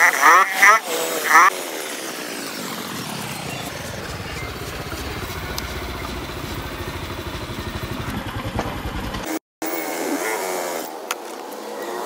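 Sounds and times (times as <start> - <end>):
motorcycle engine running: 2.3 - 9.4.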